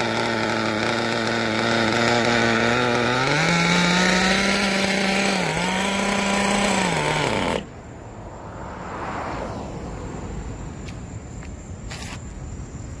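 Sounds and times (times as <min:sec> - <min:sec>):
small engine running at high revs: 0:00.0 - 0:07.7.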